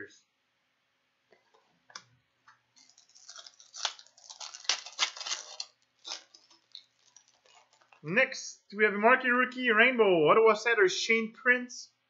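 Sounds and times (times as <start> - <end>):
foil wrapper crinkling: 2.8 - 8.1.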